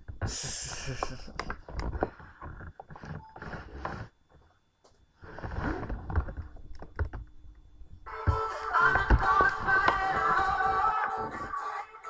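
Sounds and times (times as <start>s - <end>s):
music remix playing: 8.1s - 12.0s.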